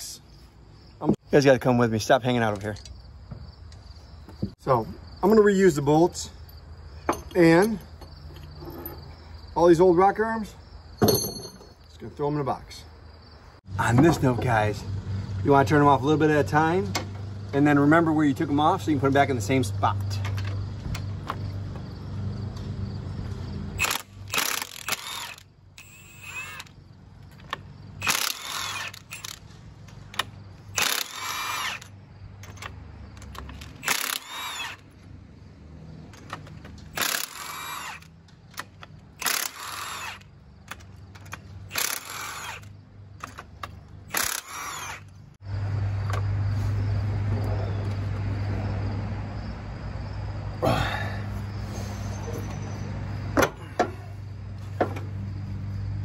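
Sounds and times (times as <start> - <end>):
impact wrench bursts: 23.8 - 26.7, 28.0 - 29.5, 30.7 - 32.0, 33.7 - 34.9, 36.9 - 38.2, 39.2 - 40.3, 41.7 - 42.8, 44.1 - 45.1.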